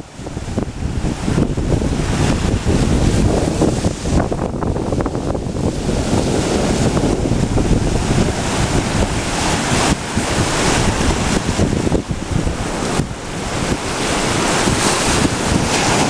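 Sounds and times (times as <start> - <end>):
surf breaking over boulders: 0.0 - 16.0
wind buffeting microphone: 0.0 - 16.0.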